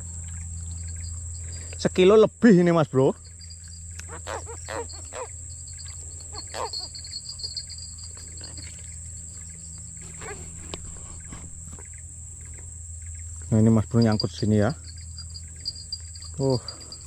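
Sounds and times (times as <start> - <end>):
insects buzzing: 0.0 - 17.0
low hum: 3.2 - 13.6
catfish croaking: 4.0 - 7.5, 10.0 - 11.9.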